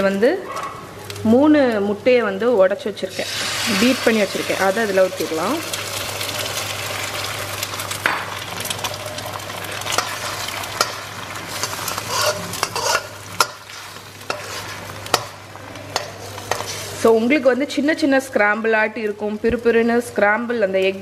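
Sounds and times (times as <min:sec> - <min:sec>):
eggs sizzling in hot oil: 0:01.0 - 0:18.3
metal spatula scraping wok: 0:09.9 - 0:17.2.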